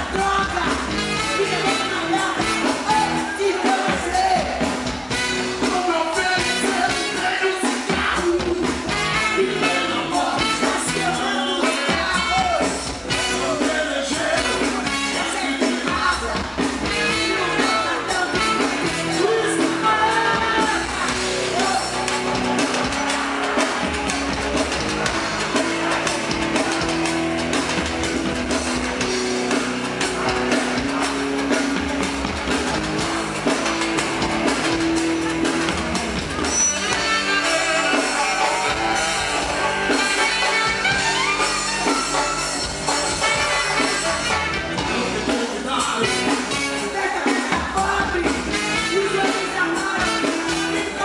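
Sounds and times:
woman singing: 0.0s - 4.6s, 17.1s - 21.2s, 46.9s - 51.0s
congas: 0.0s - 51.0s
electric guitar: 0.0s - 51.0s
live band playing: 0.0s - 51.0s.

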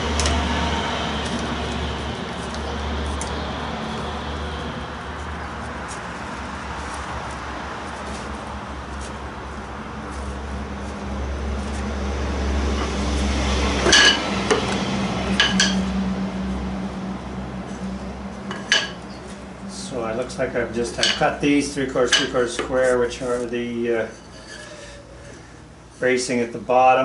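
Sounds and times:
steady low hum: 0.0s - 26.7s
metal clamps clinking: 20.9s - 21.4s, 22.1s - 22.6s.

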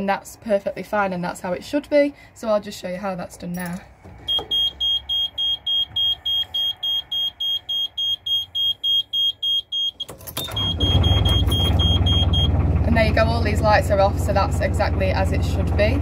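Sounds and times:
control panel alarm beeping: 4.3s - 12.6s.

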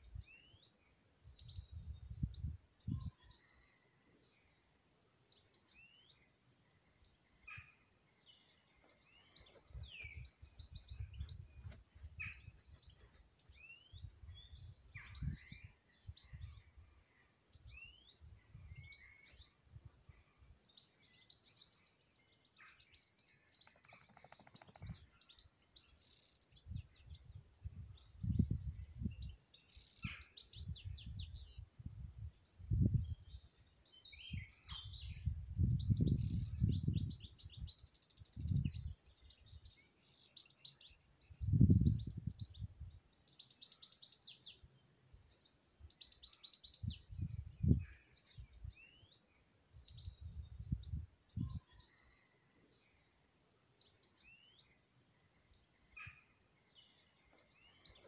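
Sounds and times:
songbirds chirping and trilling: 0.0s - 58.0s
wind buffeting microphone: 1.3s - 3.2s, 9.6s - 12.8s, 26.6s - 29.3s, 30.5s - 33.4s, 34.3s - 39.0s, 41.3s - 43.0s, 46.8s - 48.8s, 49.8s - 51.6s.

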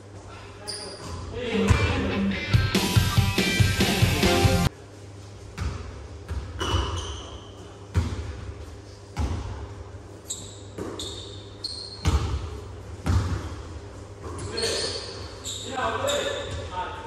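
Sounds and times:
sneakers squeaking on court: 0.6s - 1.4s, 5.6s - 16.8s
music: 1.5s - 4.7s
basketball bouncing on gym floor: 5.6s - 9.8s, 10.4s - 14.8s.

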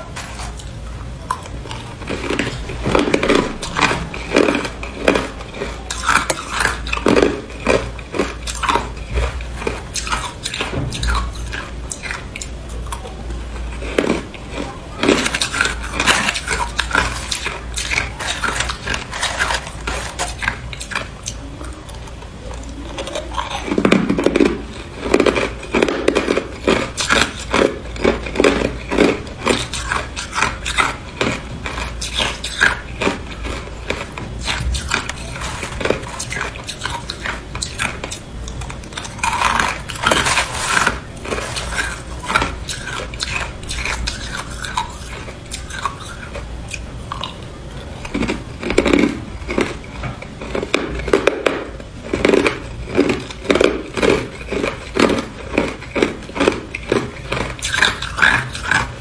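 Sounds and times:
person crunching ice: 2.0s - 12.2s, 13.8s - 21.0s, 24.3s - 38.2s, 38.9s - 46.2s, 50.5s - 58.9s.

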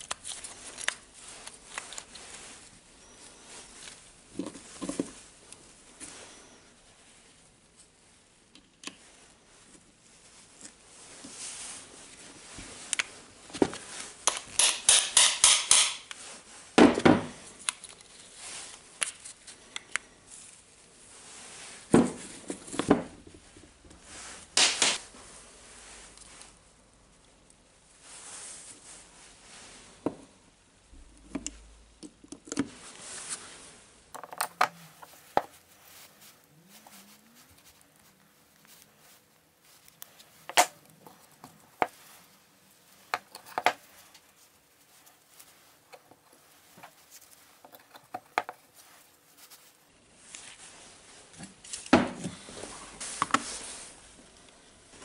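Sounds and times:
rustle of gloved hands: 0.0s - 14.6s, 16.0s - 22.7s, 23.4s - 30.6s, 32.7s - 55.0s
pliers clicking on metal parts: 14.3s - 16.2s.

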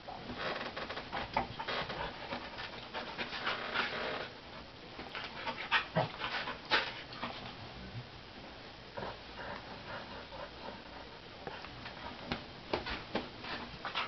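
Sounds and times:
dogs panting: 5.0s - 7.5s, 9.0s - 14.0s.

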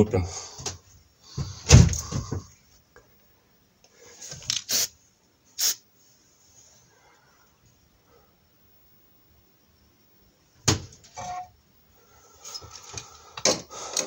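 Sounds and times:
short hissing bursts: 4.2s - 5.9s.

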